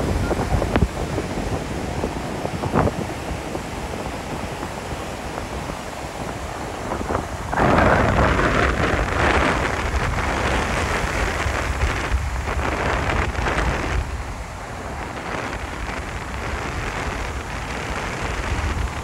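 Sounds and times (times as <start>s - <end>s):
rushing wind and surf: 0.0s - 19.0s
wind buffeting microphone: 0.0s - 19.0s.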